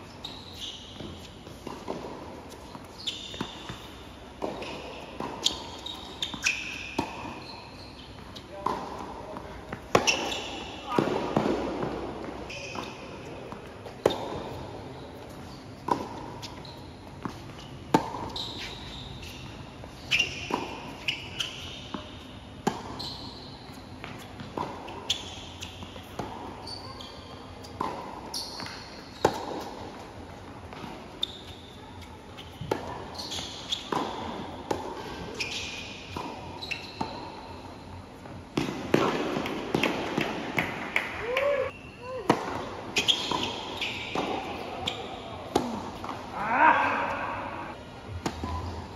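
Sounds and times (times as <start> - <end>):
shoes squeaking on court: 0.0 - 40.8, 41.6 - 48.9
tennis racket hitting ball: 8.6 - 14.7, 15.8 - 16.6, 17.2 - 18.7, 33.8 - 35.2, 38.5 - 41.2, 42.3 - 46.2.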